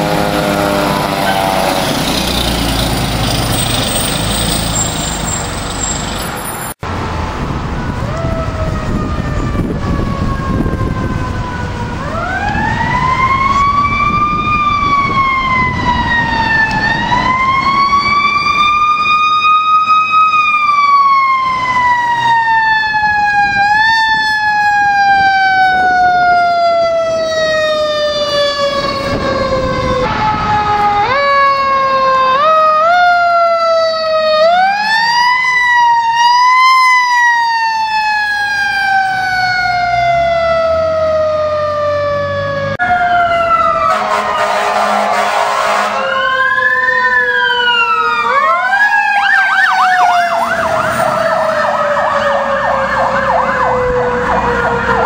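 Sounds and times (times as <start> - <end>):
mechanical siren wailing: 0.0 - 3.8, 7.6 - 55.0
heavy truck engine rumbling: 0.0 - 32.8, 38.4 - 48.7.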